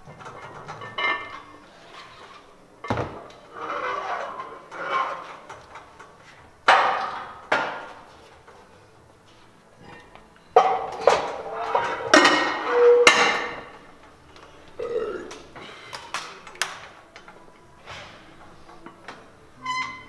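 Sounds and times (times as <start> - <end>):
weight plates clanking on barbell: 10.6 - 13.8.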